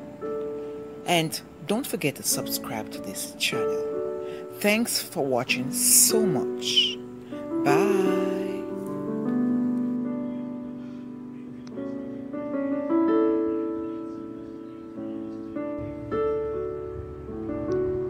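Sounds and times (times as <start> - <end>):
soft piano chords: 0.0 - 18.0.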